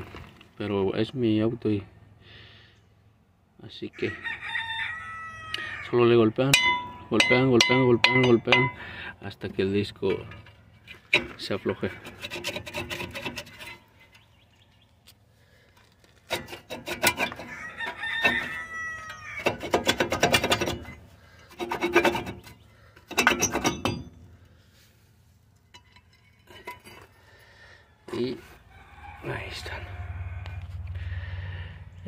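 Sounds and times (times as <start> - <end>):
rooster crowing: 4.0 - 6.0, 17.4 - 19.7, 28.5 - 31.5
metal brake rotor scraping: 9.9 - 14.5, 15.5 - 27.8.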